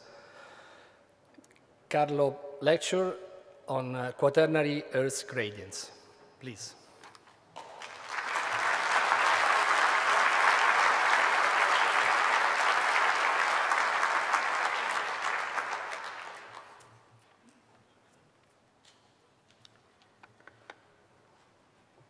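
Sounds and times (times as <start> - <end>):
audience applauding: 7.6 - 17.0.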